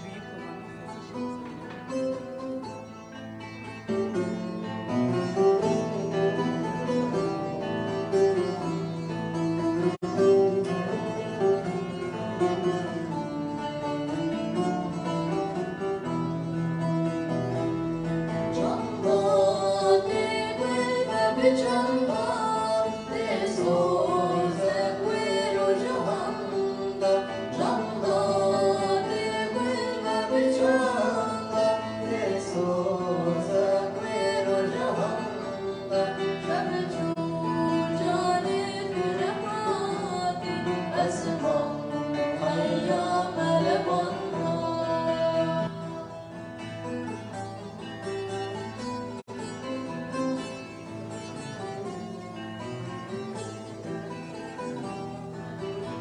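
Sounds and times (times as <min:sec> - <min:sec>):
acoustic guitar: 0:00.0 - 0:56.0
long-necked lute playing: 0:00.0 - 0:56.0
man singing: 0:18.5 - 0:38.1.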